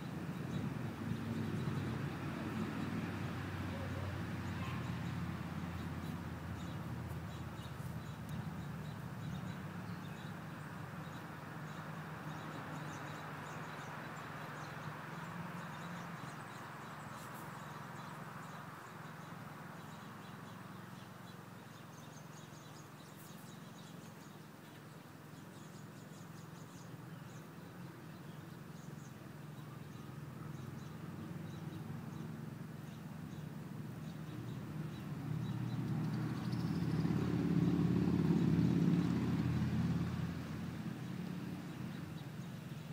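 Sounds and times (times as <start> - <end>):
faint bird chirps: 3.7 - 5.0.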